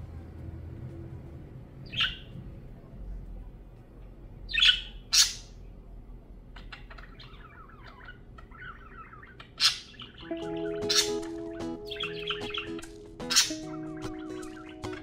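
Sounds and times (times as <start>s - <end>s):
budgerigar calling and chirping: 1.8s - 2.3s, 4.5s - 5.6s, 6.6s - 15.0s.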